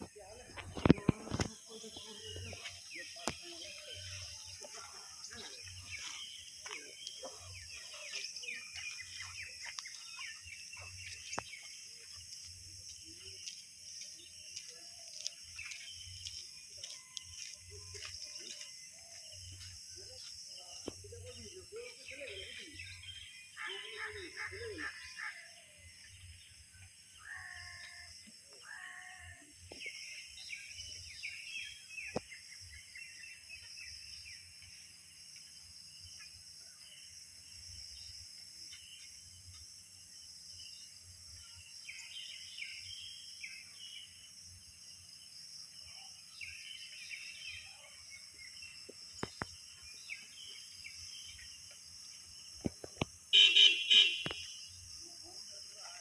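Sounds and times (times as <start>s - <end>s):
birds chirping: 0.0s - 28.0s, 45.6s - 54.8s
insect chorus: 0.0s - 56.0s
car horn honks: 53.3s - 54.5s.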